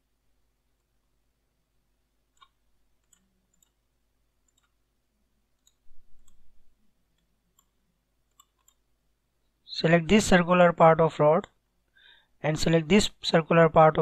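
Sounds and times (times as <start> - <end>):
faint computer mouse clicks: 4.4 - 4.8, 7.2 - 8.8.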